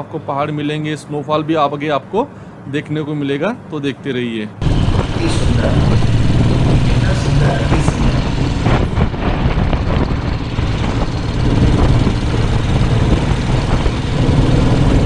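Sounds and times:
wind and road noise: 0.0s - 15.0s
motorcycle engine running: 4.6s - 15.0s.

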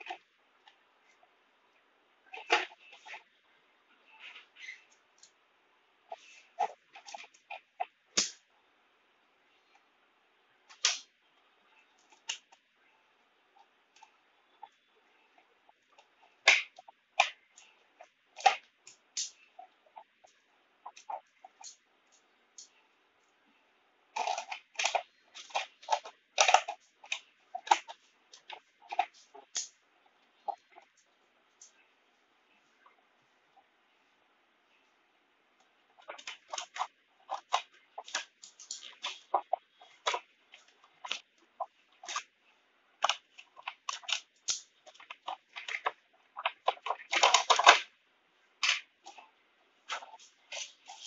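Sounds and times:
scissors cutting plastic: 24.2s - 29.7s.

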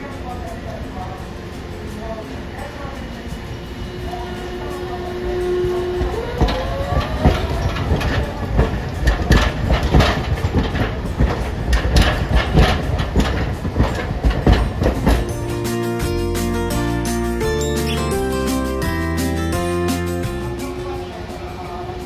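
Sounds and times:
tram wheels clacking over rail joints: 5.4s - 15.3s.

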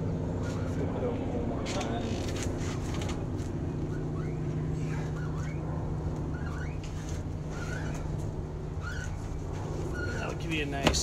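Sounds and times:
steady low hum: 0.0s - 11.0s
high squeaks: 6.3s - 10.6s.

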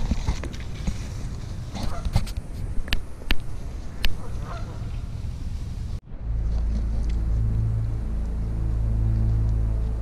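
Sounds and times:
low rumble: 2.6s - 10.0s
waterfowl calling: 4.1s - 5.2s
low music drone: 6.0s - 10.0s.

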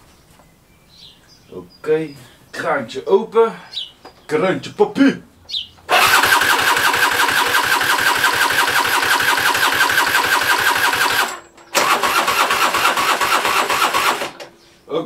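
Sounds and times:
scooter engine cranking: 5.9s - 14.5s.

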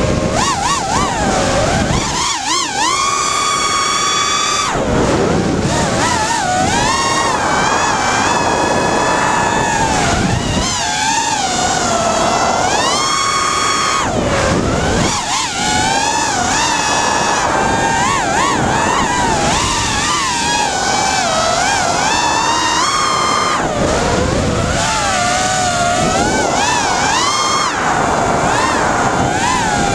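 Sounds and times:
quadcopter motors whining: 0.0s - 29.9s
rush of air noise: 0.0s - 29.9s.

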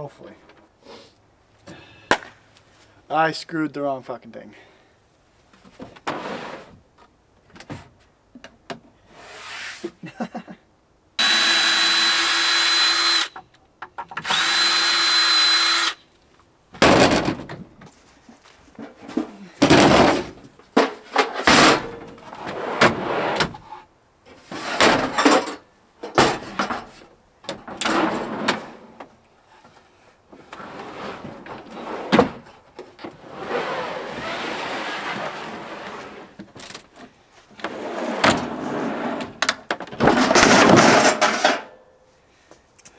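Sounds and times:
wood scraping on truck bed: 5.7s - 6.8s, 18.8s - 29.1s, 30.3s - 36.5s, 37.6s - 41.6s.

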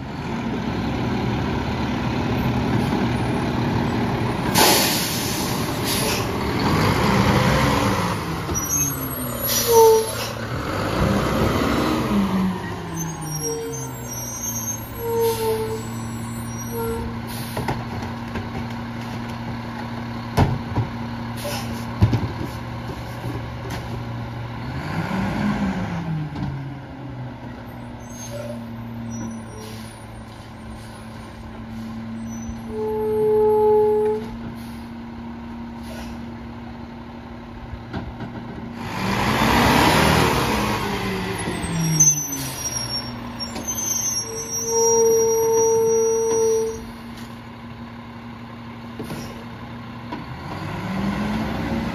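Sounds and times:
truck diesel engine revving: 0.0s - 16.4s, 24.2s - 28.0s, 38.6s - 46.8s, 47.5s - 51.9s
air brake hiss: 4.5s - 6.3s, 35.8s - 36.3s.

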